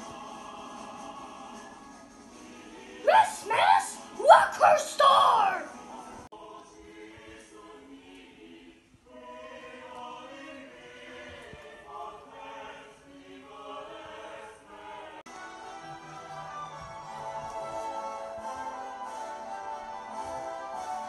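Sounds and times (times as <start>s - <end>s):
quiet music of held chords: 5.1s - 21.0s.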